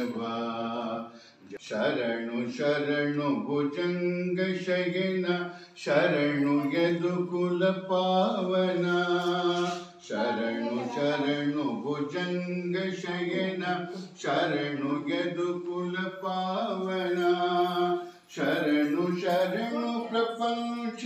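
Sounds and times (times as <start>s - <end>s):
man chanting mantras: 0.0s - 21.0s.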